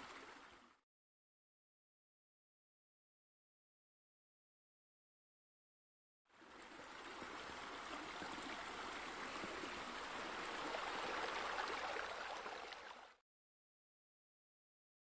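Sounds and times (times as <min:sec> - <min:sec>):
water splashing into a pool: 0:09.6 - 0:13.2.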